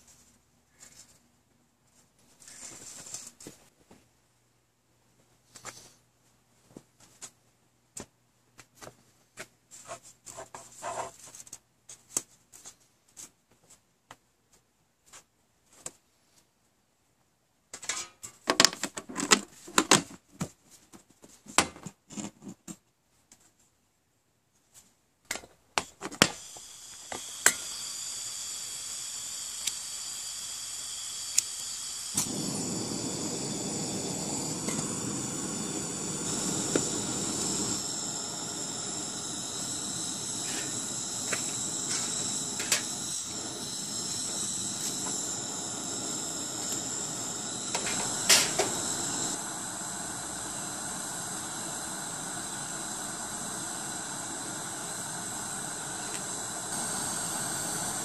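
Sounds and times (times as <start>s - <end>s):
propane stove gas hiss: 9.8s - 11.2s, 17.8s - 20.0s, 25.8s - 58.0s.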